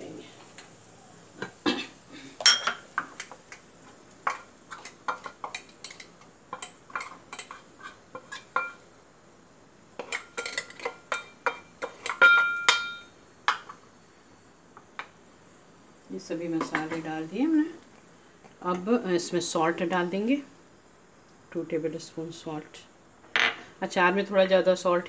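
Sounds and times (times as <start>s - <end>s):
metal spoon scraping in pot: 4.7s - 8.8s
pot ringing: 12.1s - 13.1s.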